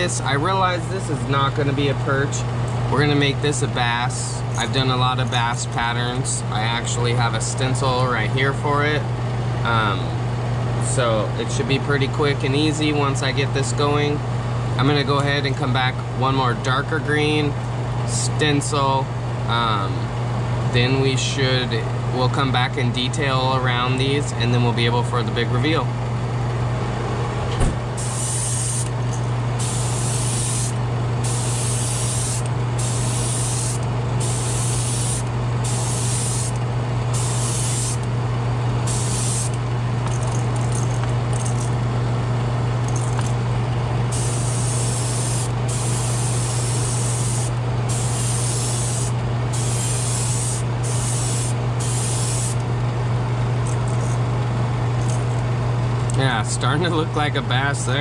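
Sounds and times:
airbrush hissing bursts: 28.0 - 28.9, 29.6 - 38.0, 38.9 - 39.6, 44.1 - 52.6.

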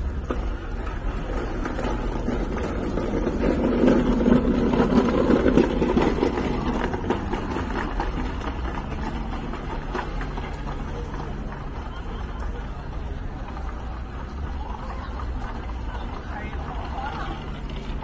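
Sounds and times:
street traffic: 0.0 - 18.0
vehicle engine running nearby: 0.0 - 18.0.

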